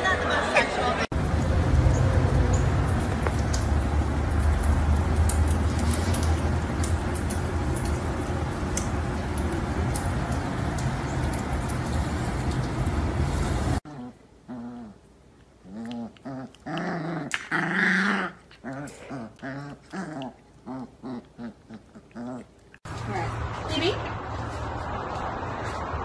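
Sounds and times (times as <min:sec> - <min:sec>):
animals growling and whining: 0:13.9 - 0:15.0, 0:15.6 - 0:22.7.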